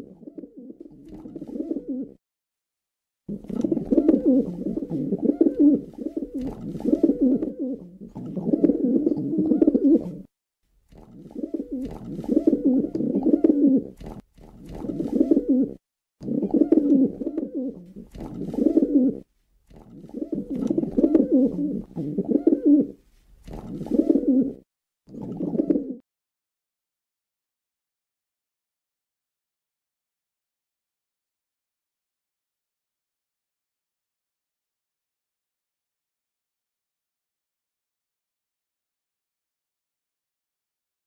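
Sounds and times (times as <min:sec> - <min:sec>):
pigeons cooing: 0:00.0 - 0:02.2, 0:03.3 - 0:10.3, 0:11.0 - 0:19.2, 0:19.8 - 0:24.6, 0:25.2 - 0:26.0.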